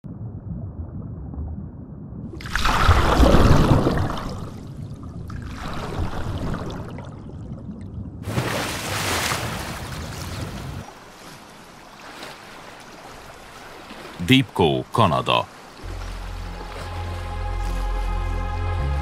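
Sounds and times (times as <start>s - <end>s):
paddle strokes through water: 8.3s - 14.3s, 15.5s - 18.3s.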